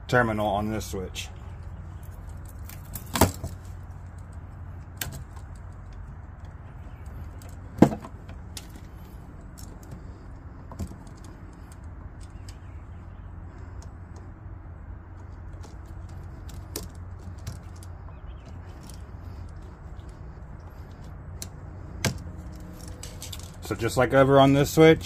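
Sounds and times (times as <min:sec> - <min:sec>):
steady low hum: 0:00.0 - 0:25.0
small metallic clicks and clinks: 0:15.6 - 0:23.8.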